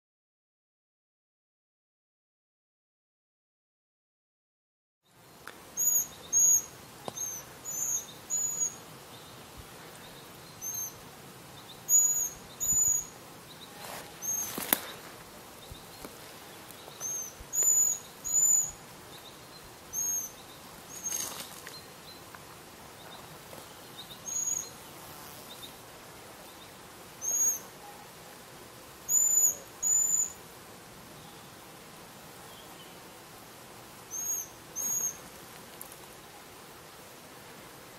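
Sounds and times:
faint hiss: 5.1 - 37.9
owl begging calls: 34.1 - 35.2.

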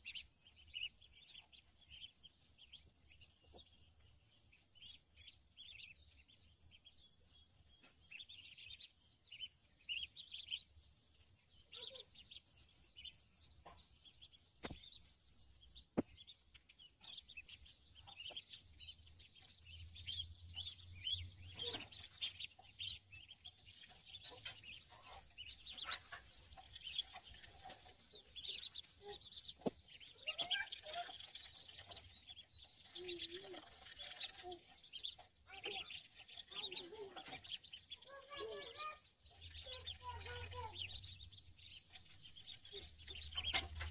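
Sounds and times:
ducklings peeping: 0.0 - 43.9.

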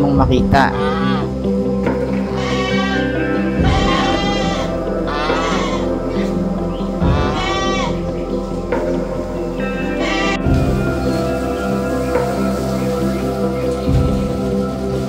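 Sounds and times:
background music: 0.0 - 15.0
livestock bleating: 0.7 - 1.3, 2.2 - 8.1, 9.8 - 10.5.

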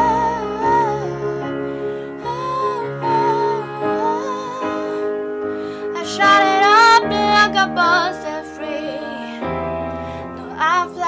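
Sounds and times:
woman singing: 0.0 - 5.2, 5.9 - 9.4, 10.4 - 11.0
piano accompaniment: 0.0 - 11.0.

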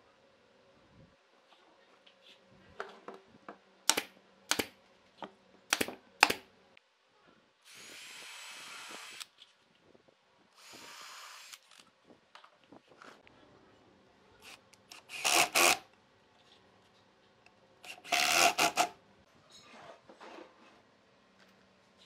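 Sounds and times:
nail gun shots: 3.9 - 4.7, 5.7 - 6.4
cordless drill driving screws: 7.7 - 9.3, 10.6 - 11.7, 14.9 - 15.8, 17.9 - 18.9.

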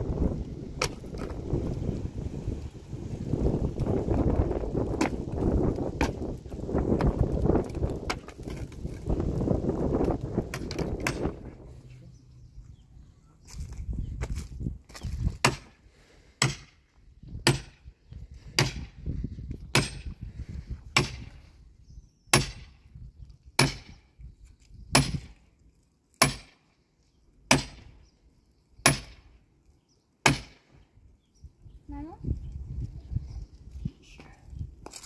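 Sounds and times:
axe chopping wood: 0.8 - 1.3, 4.8 - 6.3, 6.9 - 9.1, 10.0 - 11.4, 15.0 - 15.8, 16.4 - 16.8, 17.4 - 17.8, 18.6 - 19.0, 19.7 - 20.2, 20.9 - 21.4, 22.3 - 22.8, 23.6 - 24.0, 24.9 - 25.4, 26.2 - 26.6, 27.5 - 28.0, 28.8 - 29.3, 30.2 - 30.7.

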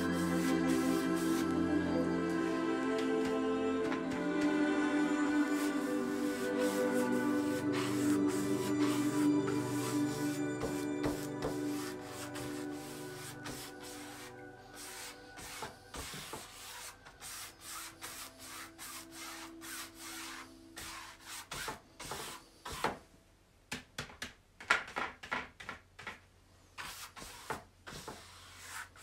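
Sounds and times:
paintbrush scrubbing on canvas: 0.0 - 1.5, 5.3 - 22.8, 26.8 - 29.0.

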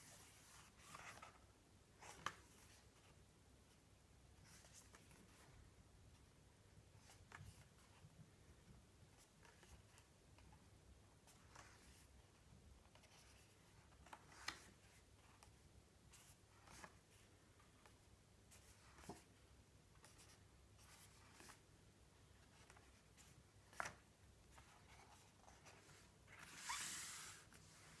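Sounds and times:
book pages turning: 12.8 - 15.5, 22.4 - 28.0.

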